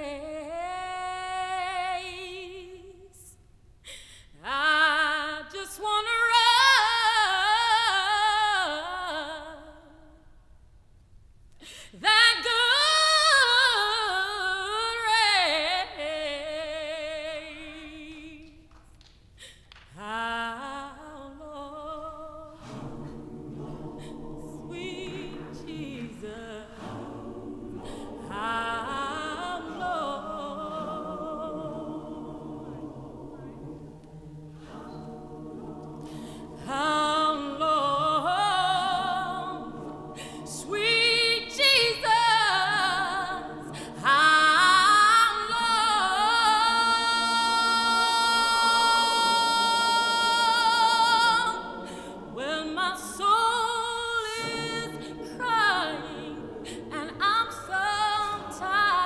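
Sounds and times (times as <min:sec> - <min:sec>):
choir singing sustained chords: 0:20.5 - 0:59.0.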